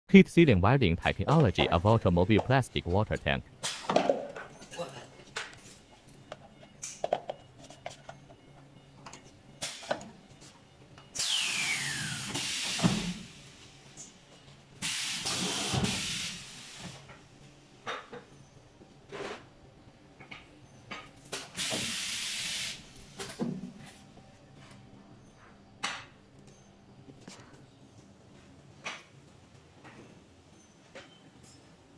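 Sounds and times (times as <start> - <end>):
compressed air hissing: 11.2 - 13.3, 14.8 - 17.0, 21.6 - 22.9.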